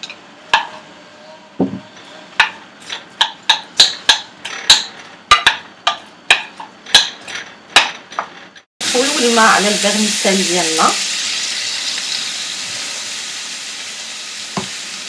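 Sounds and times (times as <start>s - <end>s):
utensil clacking on frying pan: 0.0s - 0.8s, 2.4s - 8.6s.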